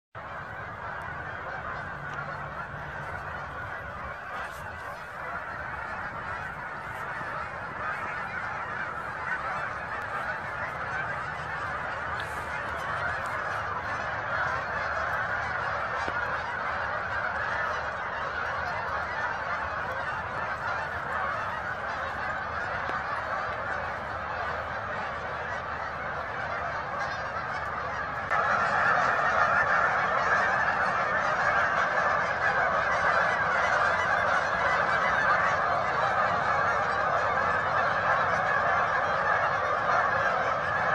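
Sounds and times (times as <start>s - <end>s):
geese honking: 0.2s - 40.9s.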